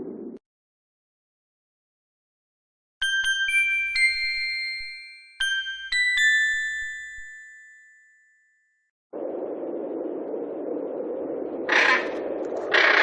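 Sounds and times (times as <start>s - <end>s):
bell-like chime notes: 3.0s - 8.8s.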